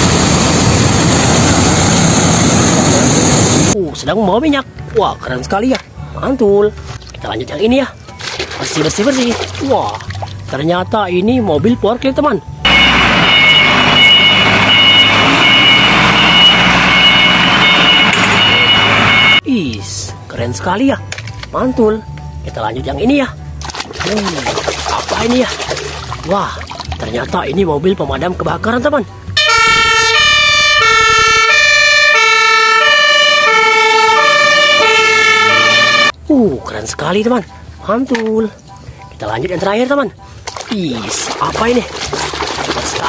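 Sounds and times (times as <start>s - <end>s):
forklift engine: 12.6s - 19.4s, 29.3s - 36.1s
high-pitched warning beeper: 12.7s - 19.4s, 29.4s - 36.1s.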